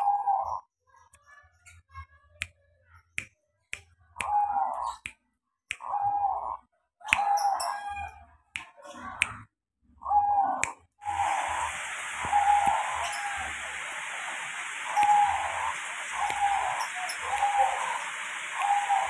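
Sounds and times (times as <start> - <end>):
dove cooing: 10.0 - 19.0.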